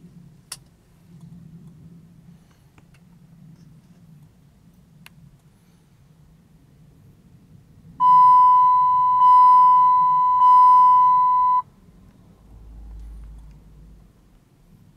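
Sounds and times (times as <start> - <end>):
high warning chime beep: 8.0 - 11.6.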